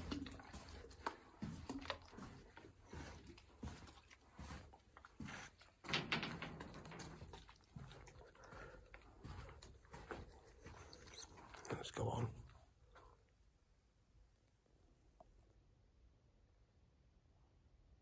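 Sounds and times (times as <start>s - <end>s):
footsteps on concrete: 0.0s - 6.0s, 6.8s - 13.1s.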